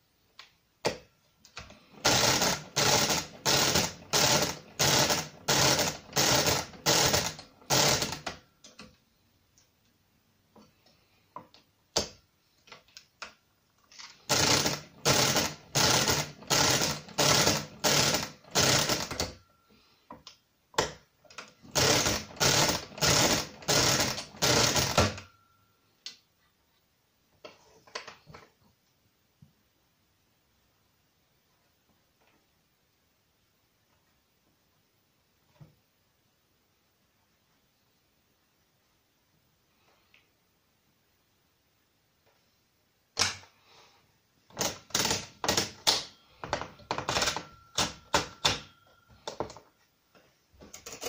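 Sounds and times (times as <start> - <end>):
mechanical calculator crank whirring: 1.9 - 8.4, 14.1 - 19.4, 21.6 - 25.3, 44.5 - 48.7.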